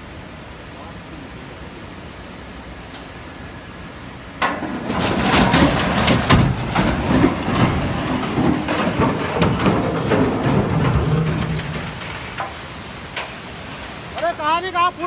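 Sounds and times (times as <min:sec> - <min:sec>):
bridge collapsing crash: 0:04.4 - 0:14.4
heavy crashing and clattering impacts: 0:04.4 - 0:14.4.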